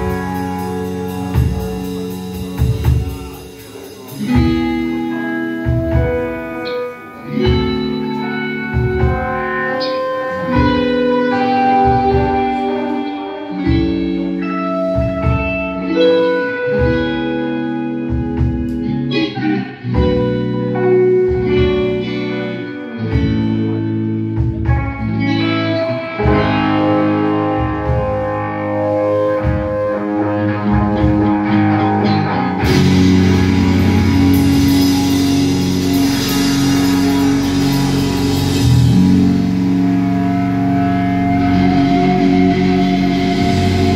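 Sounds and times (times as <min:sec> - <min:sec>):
cymbals and drumming: 0:00.0 - 0:16.1, 0:32.6 - 0:43.9
bass: 0:00.0 - 0:43.9
electric guitars: 0:00.0 - 0:43.9.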